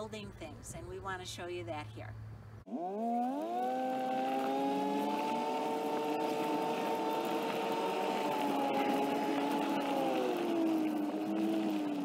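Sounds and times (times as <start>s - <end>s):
vehicle motor revving up: 2.7s - 12.0s.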